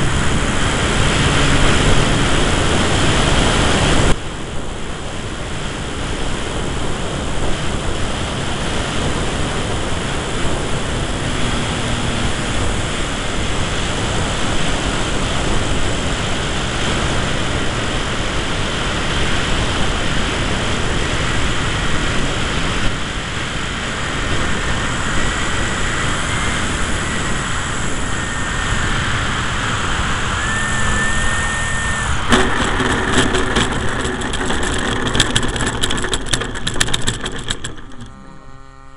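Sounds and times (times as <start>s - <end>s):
airflow and propeller noise: 0.0s - 38.9s
faint motor whine: 0.0s - 38.9s
knocks and rattles on landing: 32.2s - 38.1s.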